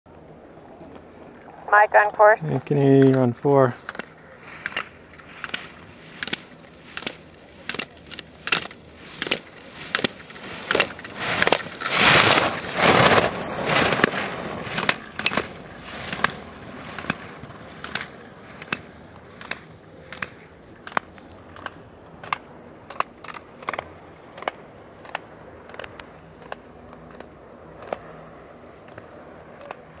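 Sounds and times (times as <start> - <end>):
ski edges scraping snow: 4.4 - 20.3.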